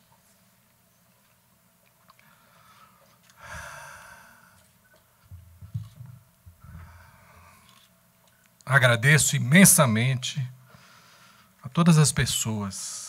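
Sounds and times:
man sighing: 3.4 - 4.6
microphone handling thumps: 5.3 - 6.9.

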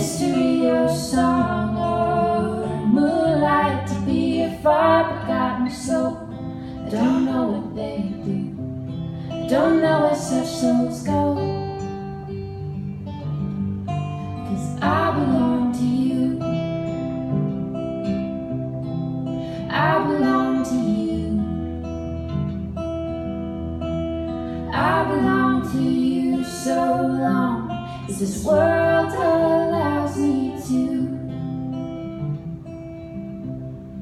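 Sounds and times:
women singing: 0.0 - 12.2, 14.4 - 17.2, 19.5 - 21.9, 24.6 - 31.8
acoustic guitar: 0.0 - 34.0.

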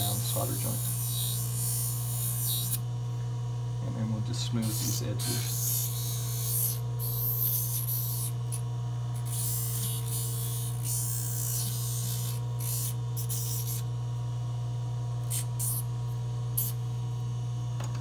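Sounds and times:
polishing lathe humming: 3.9 - 6.8.

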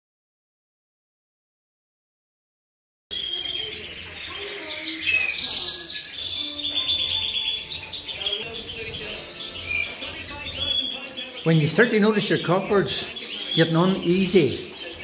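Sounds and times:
canaries singing and trilling: 3.1 - 15.0.

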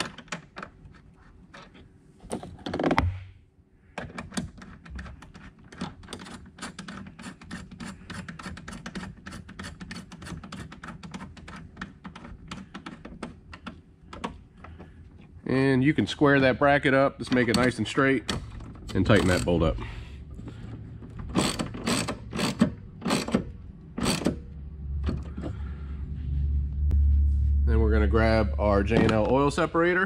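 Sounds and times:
hand ratchet clicking: 21.3 - 24.5.

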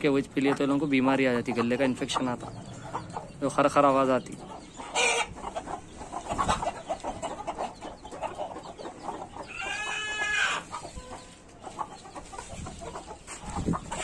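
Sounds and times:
chickens clucking softly: 0.0 - 14.0
chicken long drawn-out call: 9.5 - 11.3.

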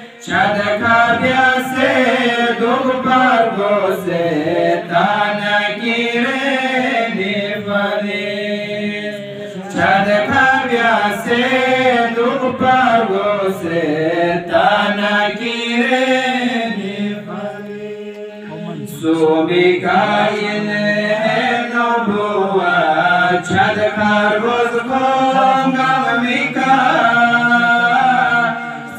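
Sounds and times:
man chanting into microphone: 0.0 - 28.9.

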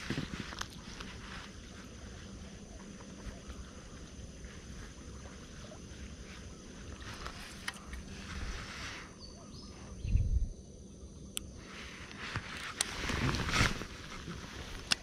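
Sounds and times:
steady low rumble: 0.0 - 15.0
faint clicks: 14.7 - 15.0.

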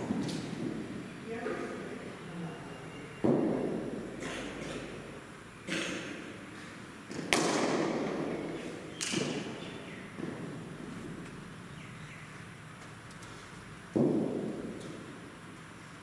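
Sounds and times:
ball thudding: 3.2 - 4.0, 7.1 - 8.3, 13.9 - 15.0
bat striking cricket ball: 7.1 - 8.2.

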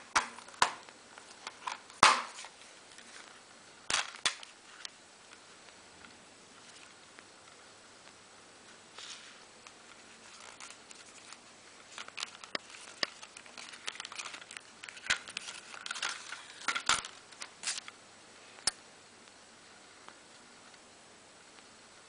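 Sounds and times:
paper rustling: 8.9 - 17.9.

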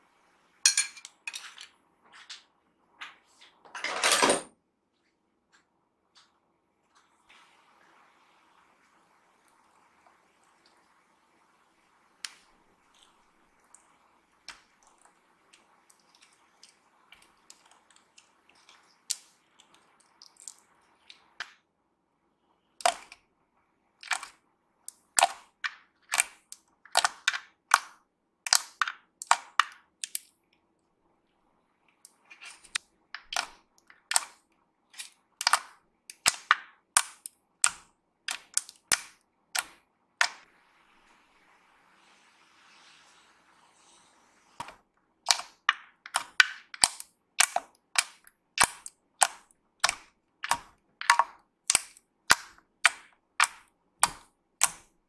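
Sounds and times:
slime clicking and popping: 28.5 - 30.3, 33.2 - 34.4, 35.0 - 40.4, 45.3 - 54.9.

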